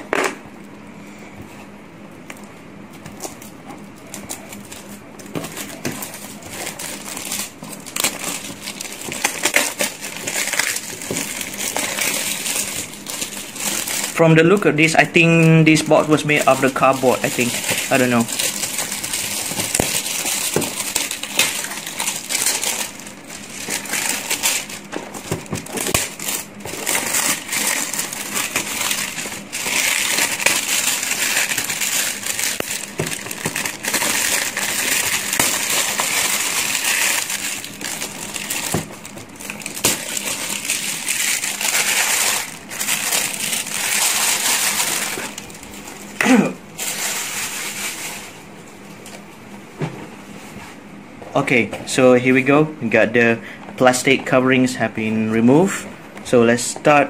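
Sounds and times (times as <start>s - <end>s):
plastic wrap crinkling and tearing: 3.0s - 46.2s, 46.8s - 48.4s.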